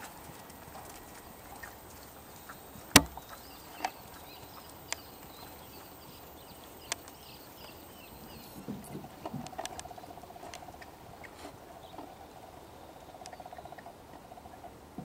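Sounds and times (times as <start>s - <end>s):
sharp clicks: 2.9s - 4.0s.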